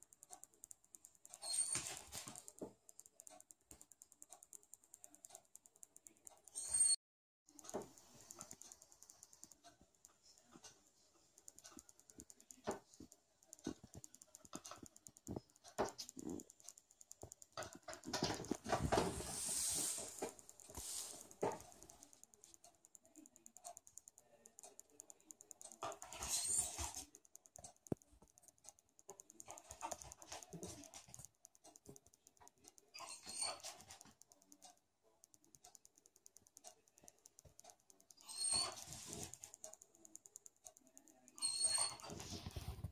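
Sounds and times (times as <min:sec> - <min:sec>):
dog claws ticking on floor: 0:11.5 - 0:22.6, 0:23.8 - 0:34.6.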